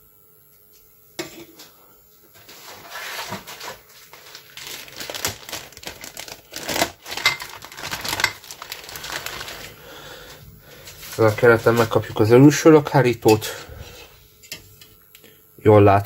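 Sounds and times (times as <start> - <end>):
plastic bag crinkling: 3.6 - 12.3.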